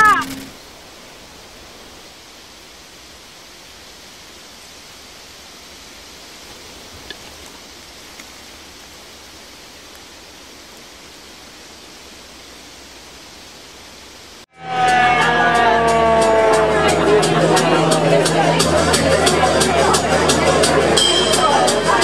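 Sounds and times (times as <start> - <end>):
steady rushing noise: 0.0 - 22.0
faint clicks: 6.5 - 8.6.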